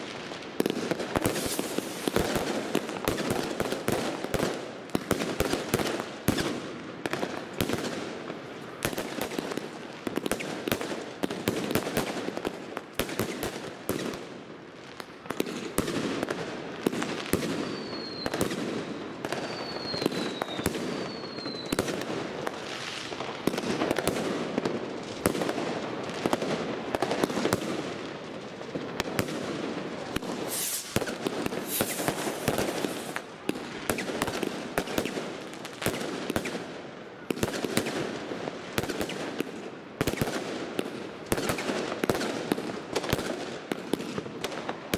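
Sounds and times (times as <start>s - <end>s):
fireworks falling whistles: 0.0s - 3.9s, 15.3s - 24.0s, 30.0s - 36.6s
fireworks cracking and banging: 0.0s - 44.9s.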